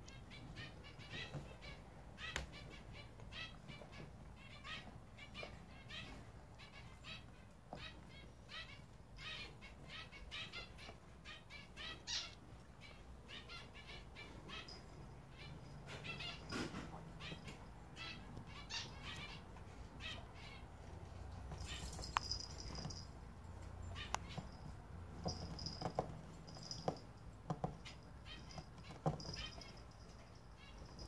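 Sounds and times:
small birds chirping: 0:00.0 - 0:23.2, 0:23.8 - 0:31.0
thin steady high tone: 0:21.6 - 0:23.2.

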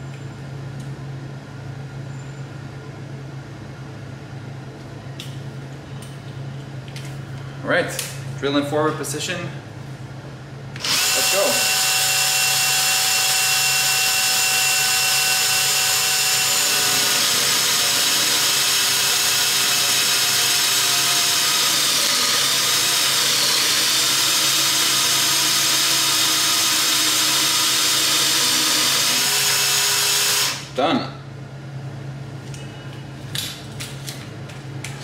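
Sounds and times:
hole saw cutting metal: 0:10.8 - 0:25.2
cordless drill motor whine: 0:10.8 - 0:30.7.

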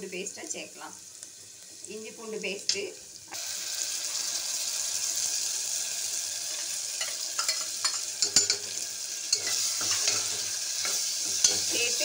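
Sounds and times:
paste sizzling in hot oil: 0:02.5 - 0:12.0
steel ladle scraping a pan: 0:06.5 - 0:12.0.

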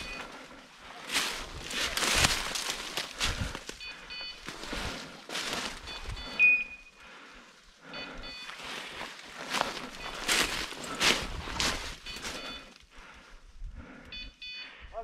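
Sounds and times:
footsteps through dry leaves: 0:00.0 - 0:03.8, 0:04.4 - 0:06.2, 0:08.4 - 0:12.6
high whistle-like tone: 0:06.2 - 0:07.0.

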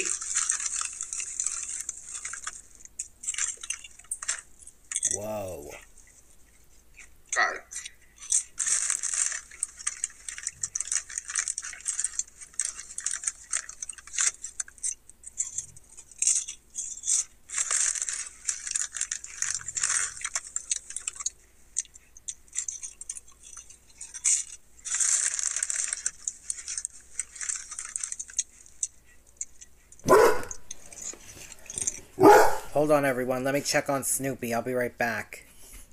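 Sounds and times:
foil chip bag crinkling: 0:00.0 - 0:34.0
dog barking: 0:30.1 - 0:30.6, 0:32.2 - 0:32.8.

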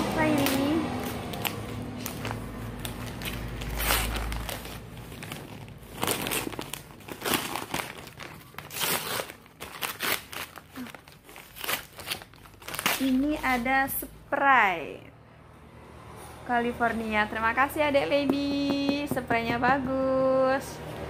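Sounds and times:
wrapping paper crinkling and tearing: 0:00.2 - 0:13.7.

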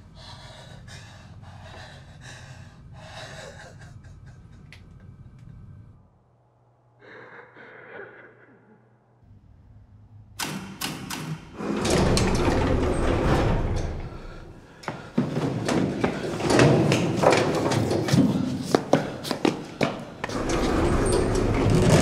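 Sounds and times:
lift doors rattling and banging: 0:10.4 - 0:18.6, 0:20.1 - 0:22.0
scraping: 0:20.3 - 0:22.0.

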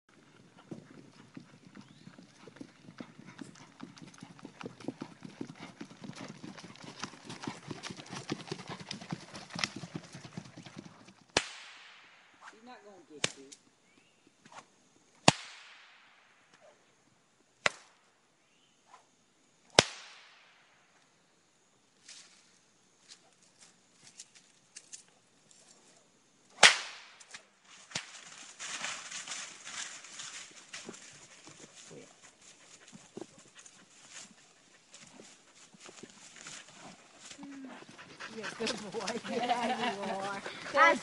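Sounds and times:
horse hooves on sandy trail: 0:00.1 - 0:11.3, 0:27.7 - 0:41.0.

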